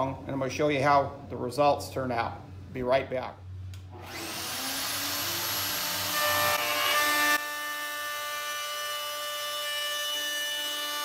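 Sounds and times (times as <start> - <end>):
router cutting metal whining: 4.0 - 11.0.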